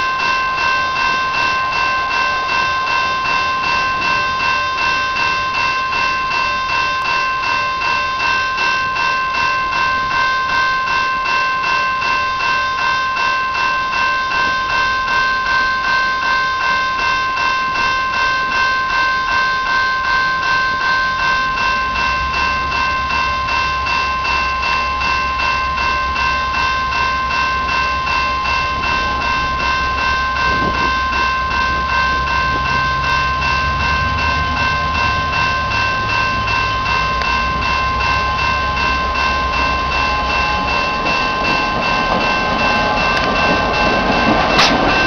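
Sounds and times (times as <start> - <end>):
railroad crossing bell ringing: 0.0 - 45.0
diesel locomotive rumble: 19.9 - 45.0.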